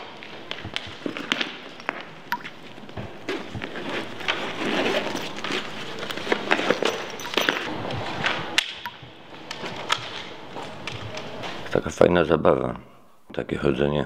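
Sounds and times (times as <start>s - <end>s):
camera gear rustling and scraping: 0.2s - 8.5s.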